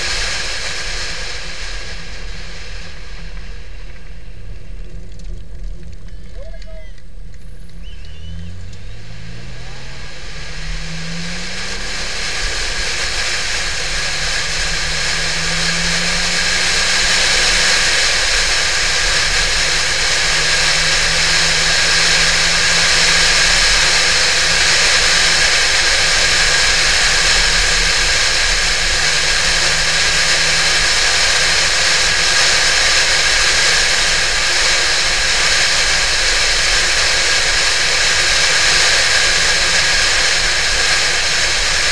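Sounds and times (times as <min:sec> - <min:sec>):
car engine accelerating: 0:00.0 - 0:41.9
wind and road noise: 0:00.0 - 0:41.9.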